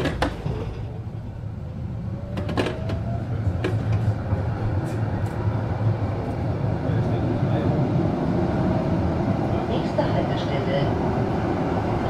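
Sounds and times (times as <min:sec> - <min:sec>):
tram clunk: 0:00.0 - 0:01.4, 0:02.2 - 0:07.1
tram low rumble: 0:00.0 - 0:12.0.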